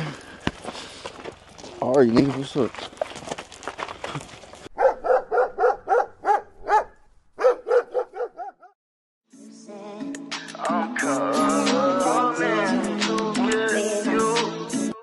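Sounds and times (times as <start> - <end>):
dog barking rapidly: 4.8 - 8.8
music: 9.3 - 15.0.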